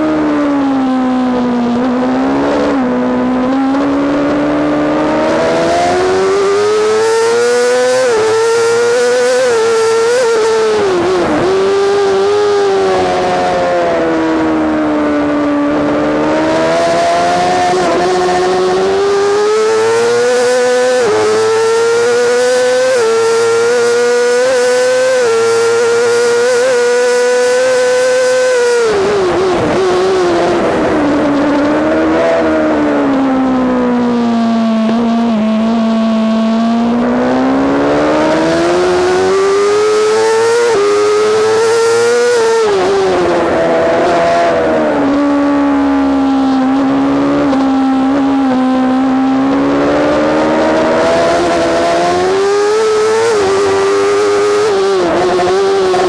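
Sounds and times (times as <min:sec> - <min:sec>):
motorcycle engine at high revs: 0:00.0 - 0:56.0.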